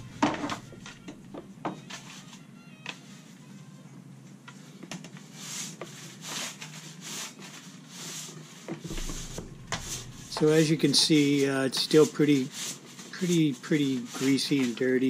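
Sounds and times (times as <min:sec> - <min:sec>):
brush knocking: 0:00.0 - 0:01.2, 0:08.8 - 0:12.4
scrub brush swishing strokes: 0:08.9 - 0:14.4.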